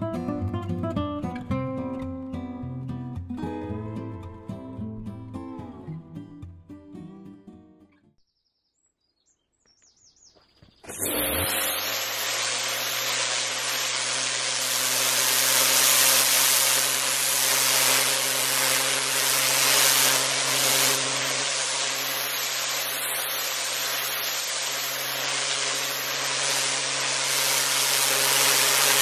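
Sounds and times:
pressure washer spray hiss: 10.9s - 29.0s
pump hum: 10.9s - 29.0s.

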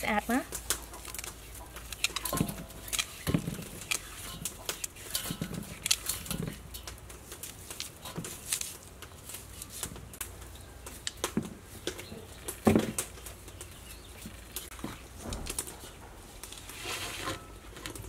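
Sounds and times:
scrubbing in a metal bowl: 0.0s - 10.0s.

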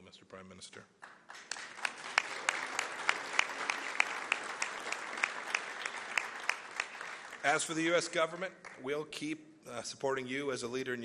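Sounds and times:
loud single claps: 1.0s - 7.4s
audience applauding: 1.0s - 9.0s.

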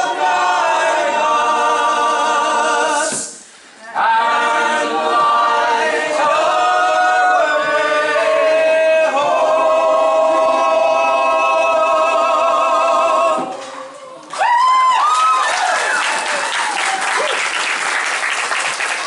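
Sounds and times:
unaccompanied group singing: 0.0s - 14.1s.

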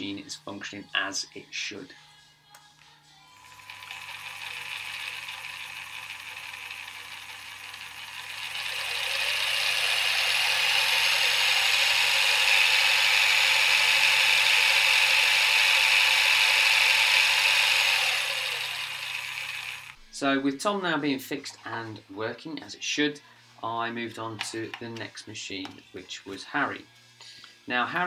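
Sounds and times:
milling machine motor whirring: 3.3s - 20.1s.

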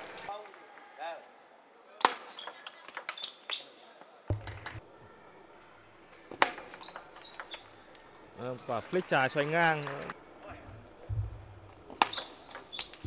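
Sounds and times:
shoes squeaking on floor: 2.3s - 4.8s, 6.7s - 7.9s, 12.0s - 13.0s.

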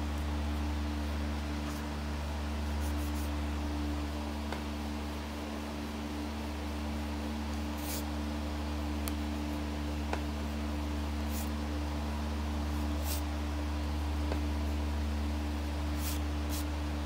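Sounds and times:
low electrical hum: 0.0s - 17.0s
pen nib scratching paper: 2.8s - 3.3s, 7.8s - 8.1s, 11.3s - 11.5s, 12.7s - 13.3s, 16.0s - 16.7s.

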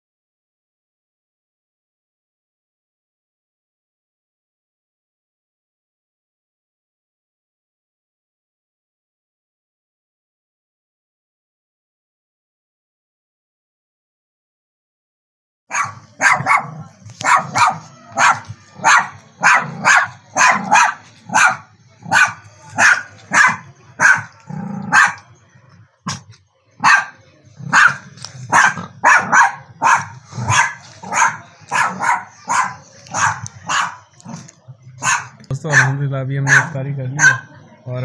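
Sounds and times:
dog barking: 15.7s - 25.3s, 26.0s - 37.6s.

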